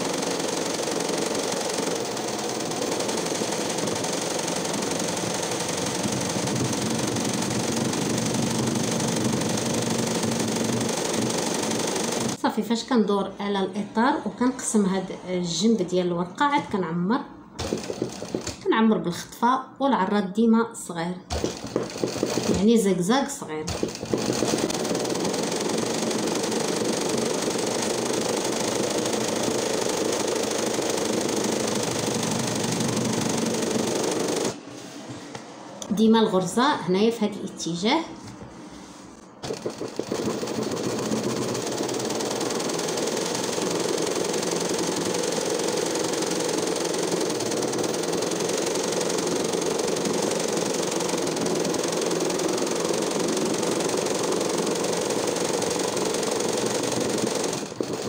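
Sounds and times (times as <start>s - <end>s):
sewing machine running: 0.0s - 12.4s, 17.6s - 18.7s, 21.3s - 22.8s, 23.7s - 34.6s, 39.1s - 58.0s.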